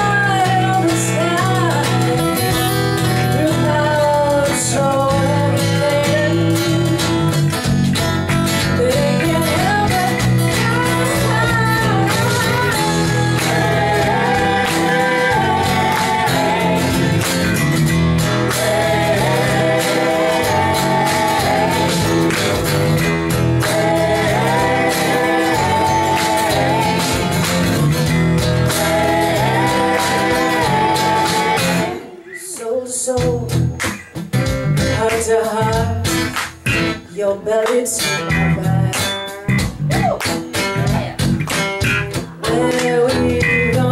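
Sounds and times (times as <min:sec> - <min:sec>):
person singing: 0:00.0 - 0:02.5, 0:03.2 - 0:07.3, 0:08.7 - 0:17.2, 0:18.4 - 0:22.6, 0:23.6 - 0:27.5, 0:28.7 - 0:33.7, 0:34.9 - 0:36.1, 0:42.1 - 0:43.9
live band playing: 0:00.0 - 0:43.9.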